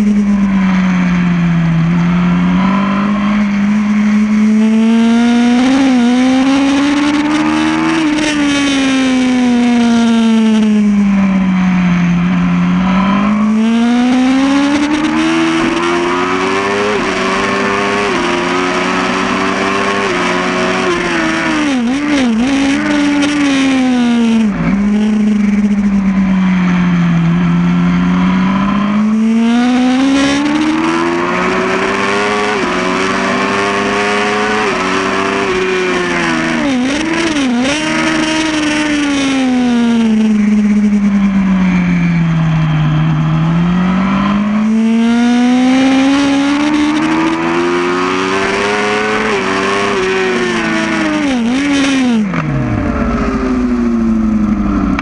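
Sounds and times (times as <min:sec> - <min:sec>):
motorcycle engine at racing speed: 0:00.0 - 0:55.0.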